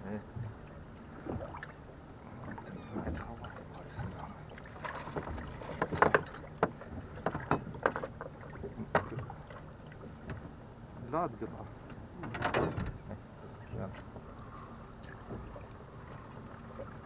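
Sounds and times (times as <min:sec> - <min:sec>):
knocks and clatter of handling: 0:04.8 - 0:08.3, 0:12.2 - 0:13.0.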